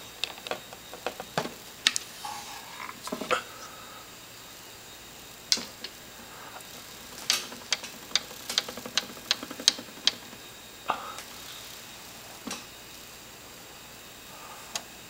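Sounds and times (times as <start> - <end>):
phonograph ticking: 4.8 - 13.3.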